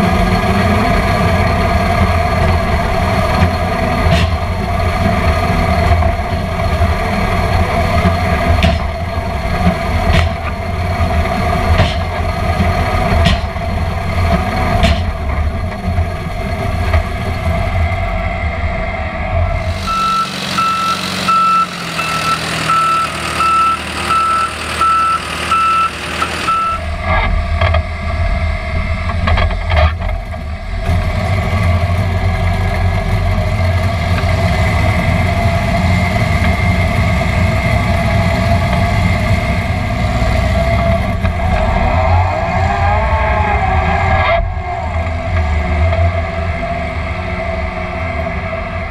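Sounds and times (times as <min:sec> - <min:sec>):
drilling rig running under load: 0:00.0 - 0:48.9
reversing alarm beeping: 0:19.7 - 0:27.0.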